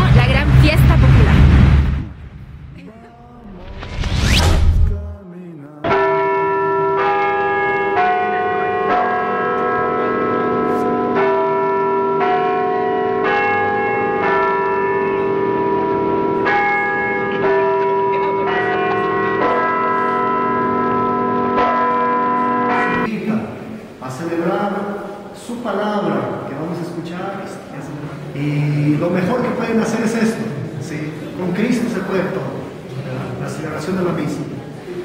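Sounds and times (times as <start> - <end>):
short whoosh: 3.4 - 5.2
church bells ringing: 5.9 - 23.1.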